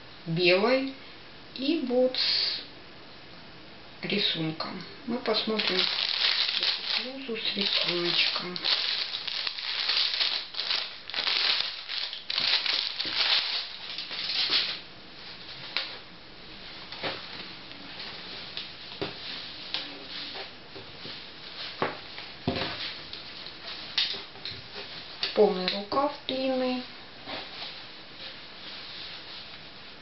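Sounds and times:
plastic bag crinkling: 5.2s - 14.8s
fabric rustling: 5.3s - 16.0s, 27.2s - 30.0s.

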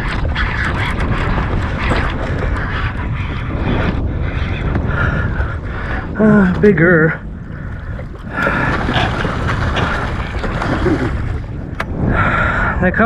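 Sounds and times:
wind buffeting microphone: 0.0s - 13.0s
fish thrashing in water: 7.4s - 11.7s.

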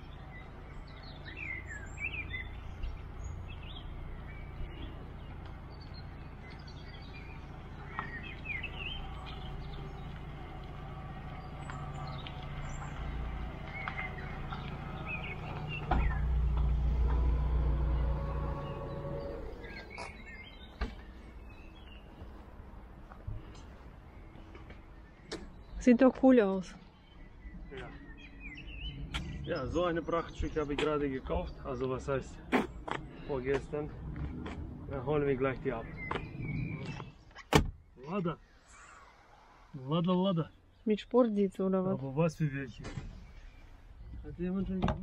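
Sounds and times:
car engine hum: 0.0s - 25.8s, 26.8s - 39.7s
birds chirping: 0.0s - 45.0s.

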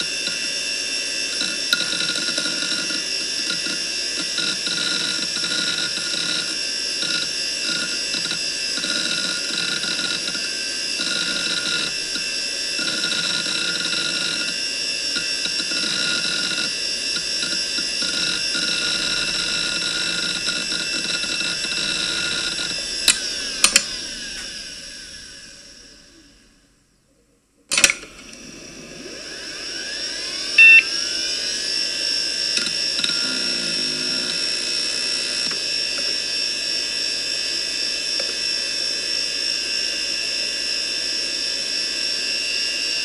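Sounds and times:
hard drive seek chatter: 0.0s - 0.6s, 1.2s - 26.6s, 29.4s - 36.2s
hard drive whine: 0.0s - 43.0s.

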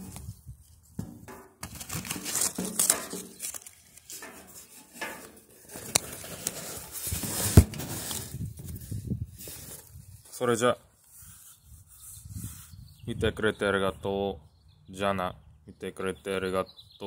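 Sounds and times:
fabric rubbing on microphone: 11.1s - 12.9s.

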